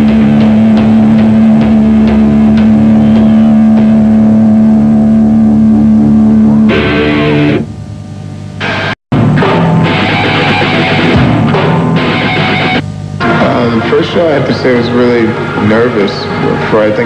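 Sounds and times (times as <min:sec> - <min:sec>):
drum hits: 0:00.0 - 0:04.7, 0:09.1 - 0:14.4
distorted electric guitar droning: 0:00.0 - 0:17.0.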